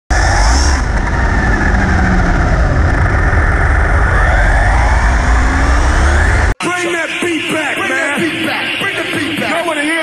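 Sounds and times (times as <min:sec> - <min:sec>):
wheels rumbling on asphalt: 0:00.1 - 0:06.6.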